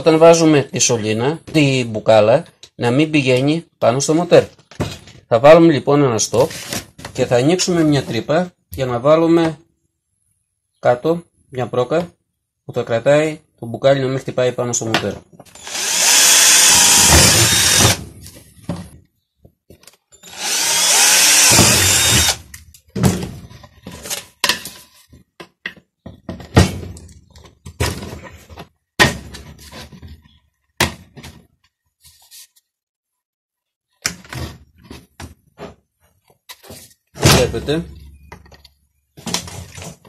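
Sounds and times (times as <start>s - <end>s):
electric drill boring plastic pipe: 15.6s - 18.0s, 20.2s - 22.4s.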